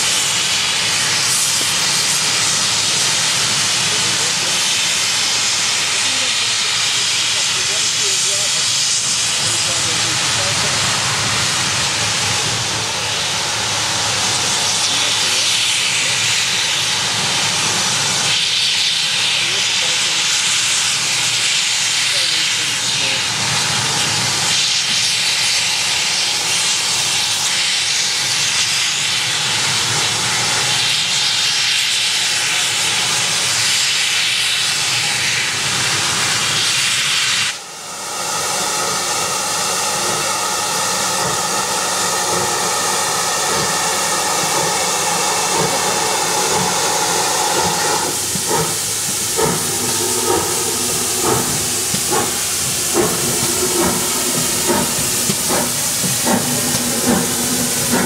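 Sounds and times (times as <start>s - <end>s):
steam hissing: 0.0s - 58.0s
steam locomotive exhaust beats: 0.0s - 58.0s.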